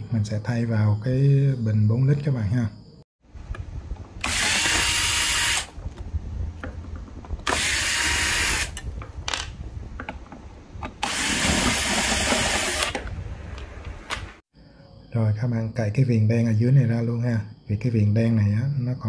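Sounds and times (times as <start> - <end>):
cordless drill motor whine: 4.2 - 5.8, 7.4 - 8.8, 11.0 - 13.0.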